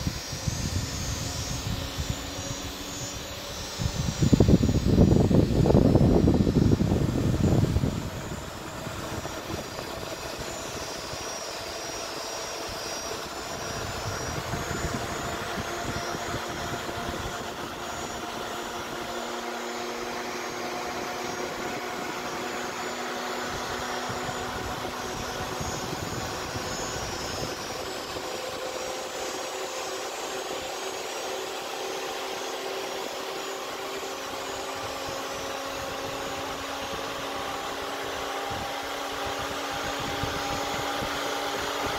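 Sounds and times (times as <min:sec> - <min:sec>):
cooling fans whirring: 0:00.0 - 0:41.9.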